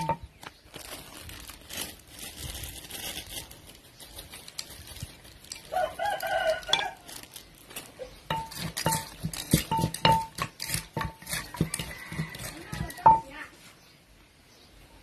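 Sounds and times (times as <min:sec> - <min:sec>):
pestle pounding in clay mortar: 0:00.0 - 0:00.3, 0:08.2 - 0:13.4
rooster crowing: 0:05.7 - 0:07.1, 0:11.4 - 0:13.2.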